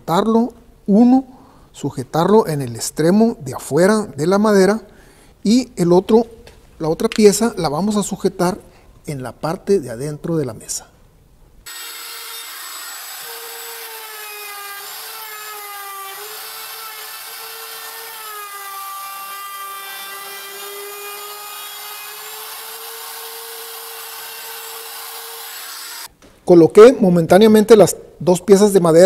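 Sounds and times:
electric router whining: 11.7s - 26.1s
router bit cutting wood: 11.7s - 26.1s.

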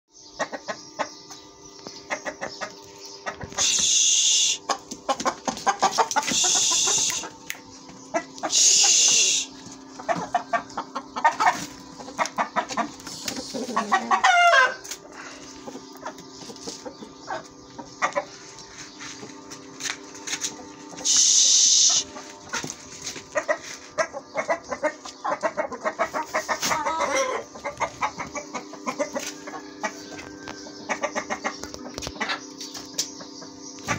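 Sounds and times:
chickens clucking and cackling: 0.1s - 33.9s
loud hiss-like bursts: 21.0s - 22.0s.

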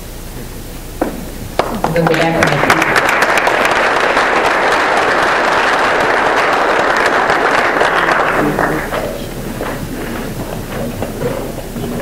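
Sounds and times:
room noise: 0.0s - 12.0s
audience applauding: 1.6s - 12.0s
faint voices: 7.7s - 12.0s.

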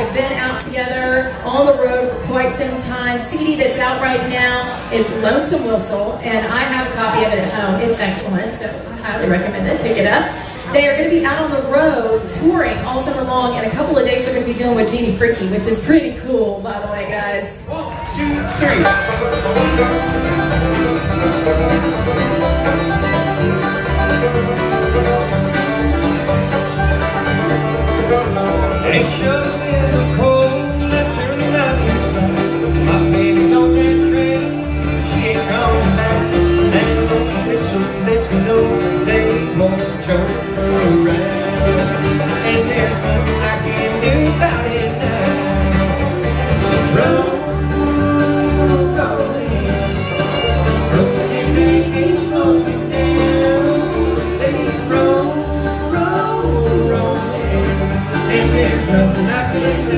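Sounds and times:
acoustic guitar: 0.0s - 59.9s
banjo: 0.0s - 59.9s
fiddle: 0.0s - 59.9s
mandolin: 0.0s - 59.9s
upright bass plucking: 17.7s - 59.9s.

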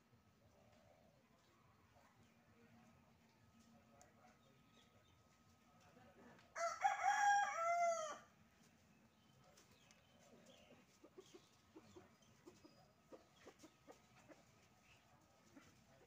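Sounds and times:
rooster crowing: 6.6s - 8.3s
chicken clucks: 9.5s - 16.0s.

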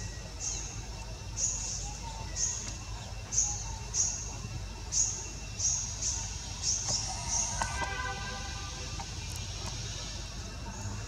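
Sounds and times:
bird chirping: 0.0s - 11.0s
low rumble: 6.5s - 9.6s.

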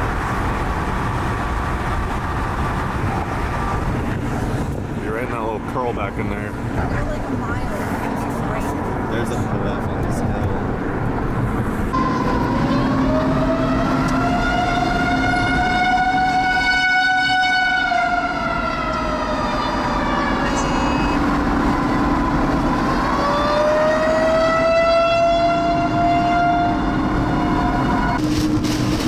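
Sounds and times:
car driving: 0.0s - 29.0s
siren wailing: 12.0s - 28.2s.

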